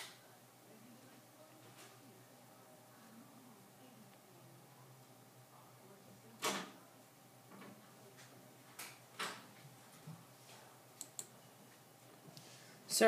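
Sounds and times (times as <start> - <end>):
small clicks: 11.0 - 11.3.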